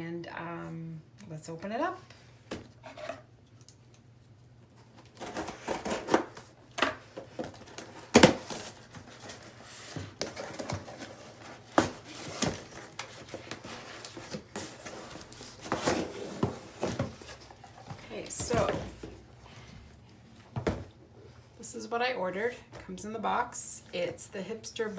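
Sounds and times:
cardboard packaging rustling: 4.7 - 19.3.

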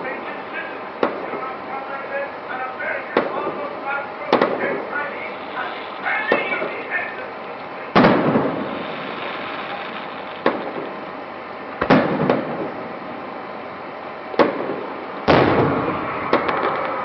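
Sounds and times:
steady background noise: 0.0 - 17.0
firework shells bursting: 3.1 - 12.9, 14.4 - 17.0.

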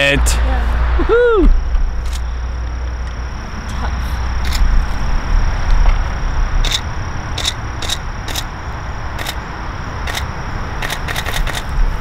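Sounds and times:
camera shutter clicks: 6.6 - 6.8, 10.1 - 11.7.

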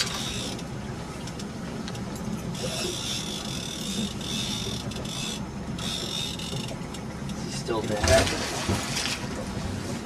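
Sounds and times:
fishing reel whirring and ratcheting: 0.0 - 0.7, 2.5 - 7.4
low boat engine hum: 0.0 - 10.0.

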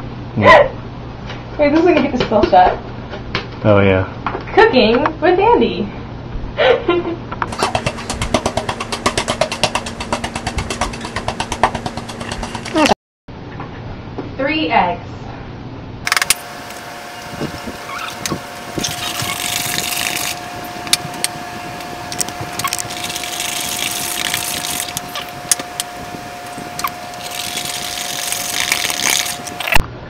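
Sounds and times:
steady high hum: 0.0 - 30.0
whisk scraping a plastic bowl: 7.5 - 12.9.

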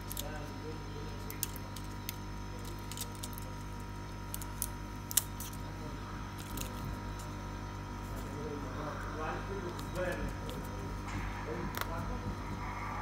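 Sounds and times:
low electrical hum: 0.0 - 13.0
plastic clicks and crinkles: 1.2 - 5.6.

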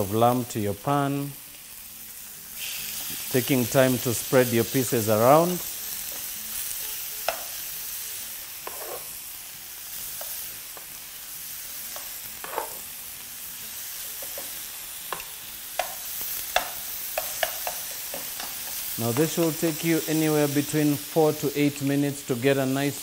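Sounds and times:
meat sizzling in hot oil: 0.0 - 23.0
metal tongs clicking on pan: 15.1 - 19.5.

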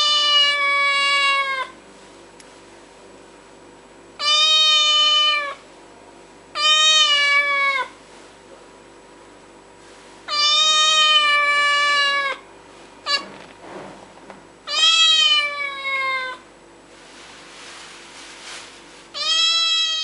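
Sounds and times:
cat meowing: 0.0 - 1.8, 4.2 - 5.6, 6.6 - 8.0, 10.3 - 12.4, 13.1 - 13.4, 14.7 - 16.4, 19.2 - 20.0.

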